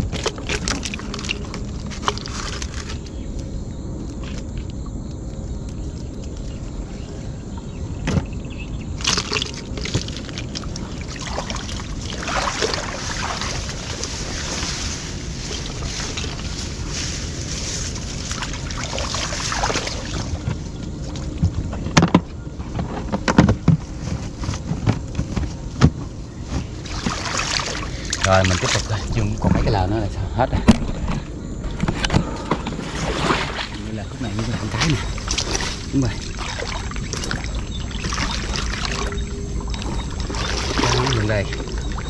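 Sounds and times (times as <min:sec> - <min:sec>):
water sloshing and splashing: 0:00.0 - 0:03.5, 0:08.9 - 0:42.0
steady low rumble: 0:00.0 - 0:42.0
sharp splashes or knocks: 0:09.0 - 0:14.9, 0:34.6 - 0:42.0.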